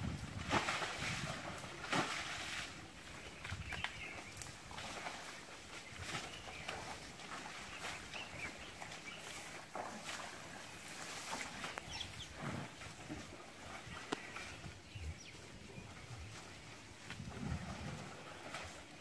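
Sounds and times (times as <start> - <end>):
elephants splashing in mud: 0.0 - 19.0
birds chirping: 3.1 - 16.9.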